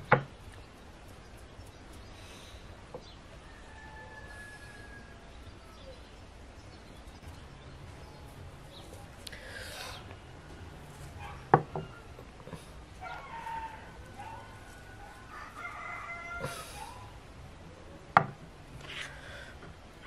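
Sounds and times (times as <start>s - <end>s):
rooster crowing: 3.4s - 5.9s, 13.0s - 17.2s
sharp knocks: 18.2s - 18.4s.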